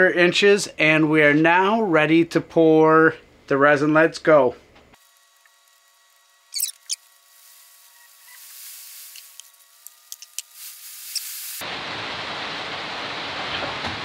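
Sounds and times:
tool blowing rushing hiss: 7.3s - 11.6s.

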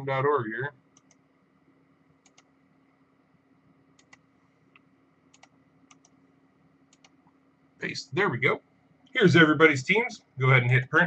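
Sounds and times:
low steady hum: 0.0s - 11.0s
computer mouse clicks: 1.0s - 1.2s, 2.2s - 2.5s, 4.0s - 6.2s, 6.9s - 7.4s.

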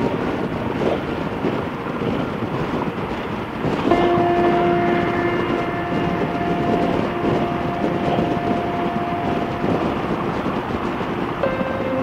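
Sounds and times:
motorcycle running: 0.0s - 12.0s
wind rushing over microphone: 0.0s - 12.0s
steady pitched tone: 3.9s - 12.0s.

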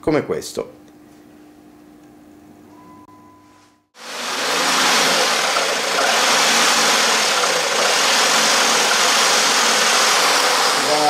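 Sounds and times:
electric jigsaw cutting wood: 4.0s - 11.0s.

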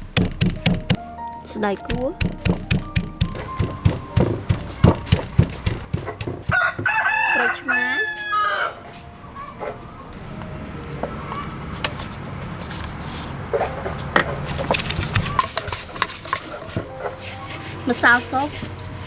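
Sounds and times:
wooden pestle knocking in mortar: 0.0s - 1.0s, 1.9s - 7.0s
rooster crowing: 6.4s - 8.9s.

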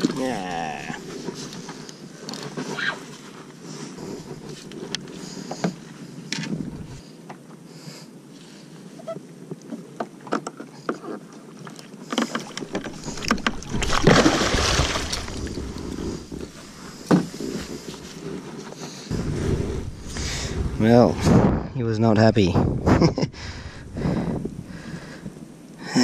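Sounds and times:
water splashing: 11.6s - 16.8s.

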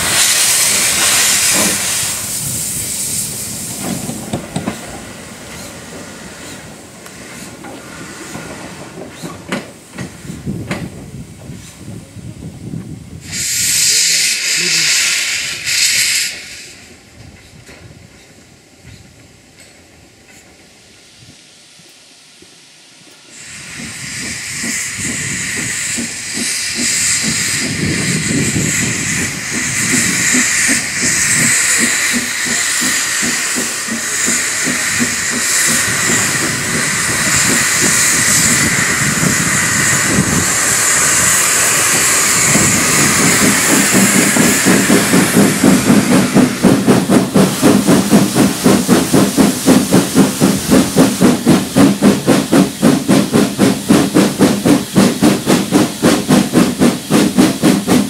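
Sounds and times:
steam hissing from drain cocks: 0.0s - 4.8s, 13.2s - 16.9s, 23.1s - 58.0s
steam locomotive chuffing: 0.0s - 12.2s, 13.2s - 58.0s.

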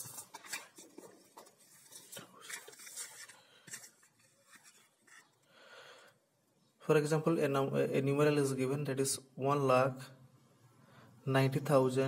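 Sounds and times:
book pages turning: 0.0s - 5.4s.

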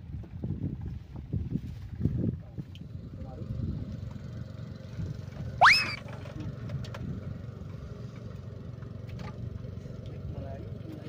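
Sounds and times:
fishing line whizzing off reel: 5.6s - 6.0s.

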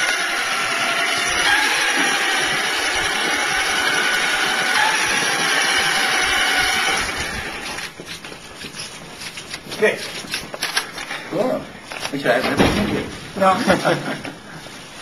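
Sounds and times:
toy truck motor running: 0.0s - 8.0s.

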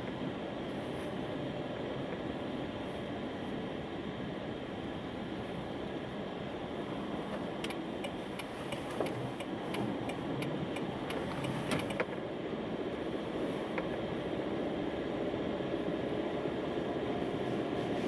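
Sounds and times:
car road and engine noise: 0.0s - 18.0s
turn signal ticking: 7.3s - 12.2s.

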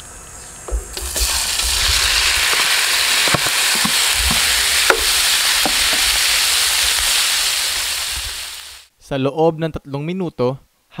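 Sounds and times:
meat sizzling in a grill pan: 0.7s - 8.9s.

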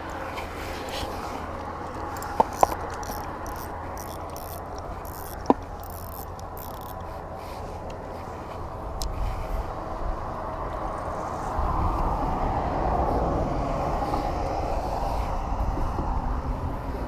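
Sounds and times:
outdoor background noise: 0.0s - 17.0s
fishing reel clicks: 2.1s - 7.1s.

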